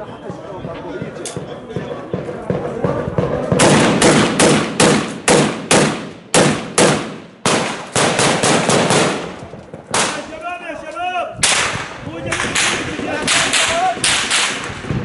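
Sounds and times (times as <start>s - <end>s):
rifle shots echoing: 3.5s - 10.3s, 11.4s - 14.8s.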